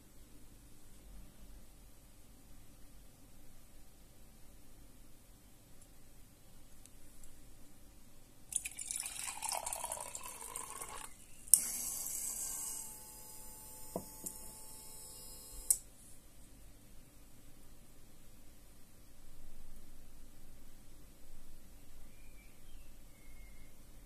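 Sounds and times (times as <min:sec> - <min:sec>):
water poured into glass jar: 0:08.5 - 0:11.2
water pump humming: 0:08.6 - 0:15.8
pump clicking on and off: 0:10.5 - 0:13.0.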